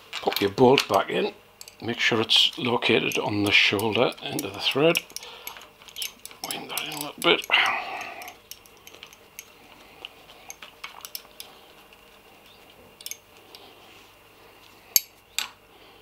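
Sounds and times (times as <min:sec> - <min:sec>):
bolt clicking and clinking: 0:01.6 - 0:09.6, 0:10.5 - 0:11.5, 0:12.4 - 0:13.3.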